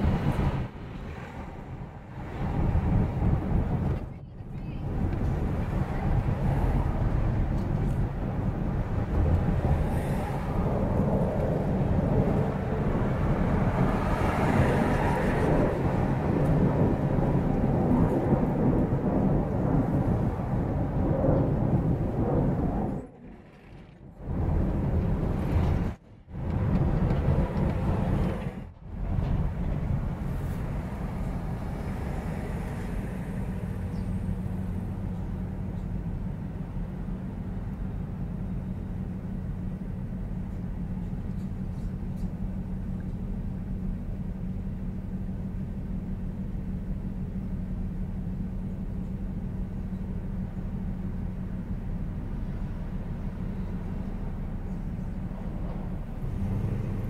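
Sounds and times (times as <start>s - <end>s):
car driving with road noise: 0.0s - 57.0s
car engine idling: 23.0s - 57.0s.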